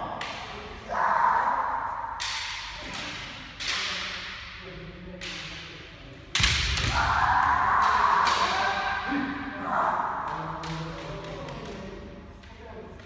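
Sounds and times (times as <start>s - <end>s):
bamboo swords striking: 2.0s - 4.6s, 5.2s - 9.5s.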